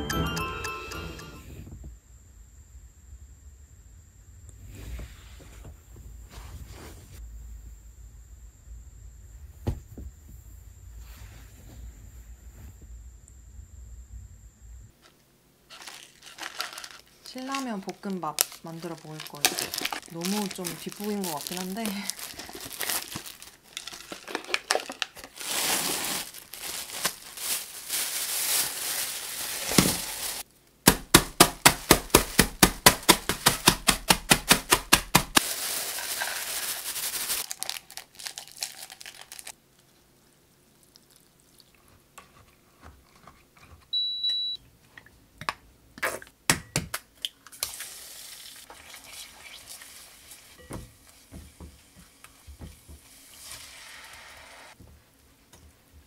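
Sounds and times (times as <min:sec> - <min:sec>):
noodles rustling into cup: 0:15.0 - 0:30.5, 0:34.5 - 0:39.6
plastic wrapper crinkling: 0:15.7 - 0:30.5, 0:31.3 - 0:39.6
noodles crushed in plastic bag: 0:15.7 - 0:39.6
electronic beep: 0:44.0 - 0:44.6
eggs sizzling in oil: 0:47.5 - 0:54.8.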